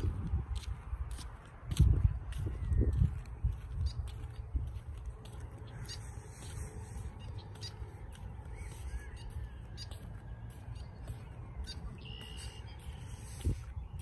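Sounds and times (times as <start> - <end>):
wind rumbling on microphone: 0.0 - 14.0
faint bird calls: 5.4 - 14.0.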